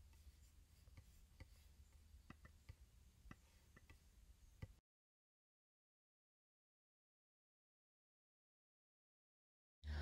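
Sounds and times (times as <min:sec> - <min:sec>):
faint irregular clicks: 0:00.0 - 0:04.8.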